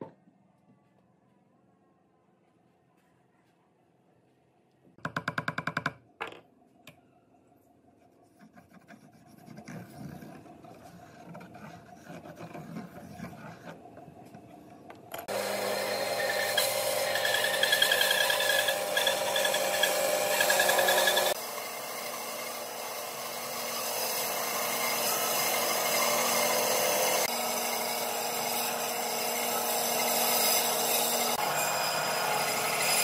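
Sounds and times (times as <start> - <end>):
pencil scratching on wood: 8.2 - 14.5
band saw running with whine: 15.3 - 33.0.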